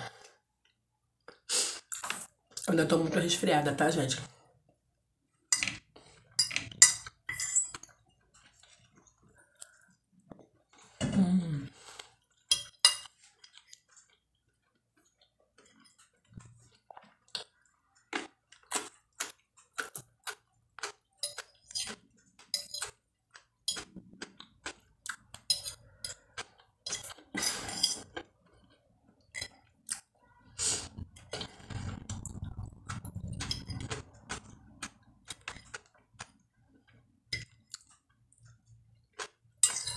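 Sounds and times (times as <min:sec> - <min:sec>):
chewing: 0:07.8 - 0:11.0, 0:13.1 - 0:39.6.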